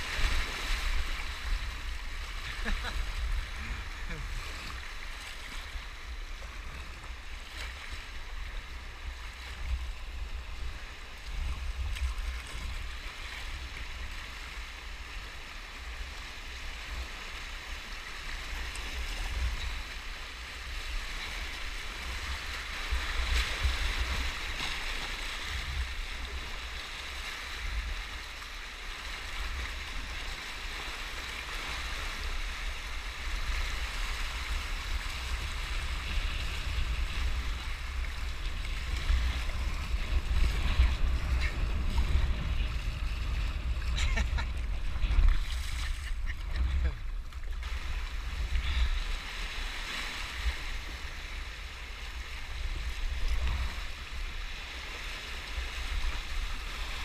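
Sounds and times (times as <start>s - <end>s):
rushing white water: 0.0s - 57.0s
wind buffeting microphone: 32.4s - 57.0s.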